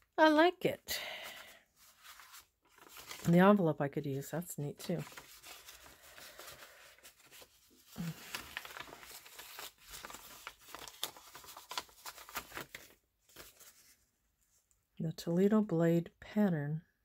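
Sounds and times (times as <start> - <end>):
paper rustling and crinkling: 1.2 - 3.4, 4.8 - 14.6.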